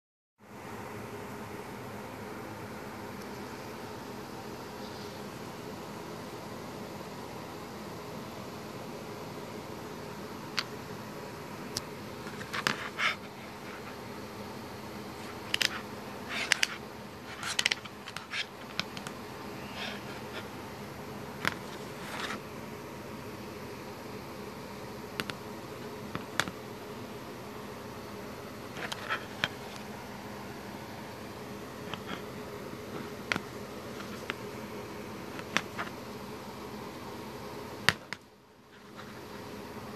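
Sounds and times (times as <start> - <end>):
low background hum: 0.4 - 39.9
plastic headphones clicks and taps: 25.2 - 25.4, 26.2 - 26.6.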